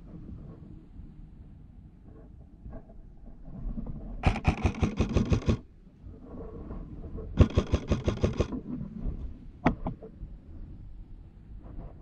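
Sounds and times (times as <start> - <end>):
airsoft rifle rapid shots: 4.2 - 5.6, 7.4 - 8.5.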